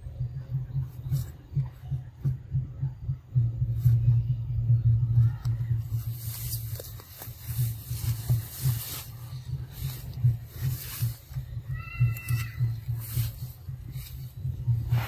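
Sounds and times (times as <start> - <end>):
low pulsing rumble on microphone: 0.0 - 15.0
grass and undergrowth rustling: 5.8 - 15.0.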